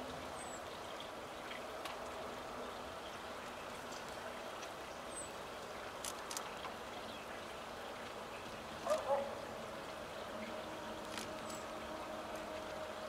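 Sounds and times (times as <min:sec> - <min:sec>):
bird cracking seed husks: 0:11.0 - 0:11.5.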